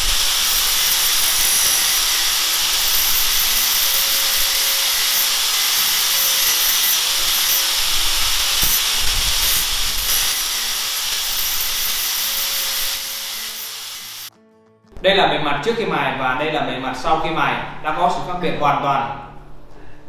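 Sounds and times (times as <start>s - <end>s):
angle grinder grinding steel: 0.0s - 14.3s.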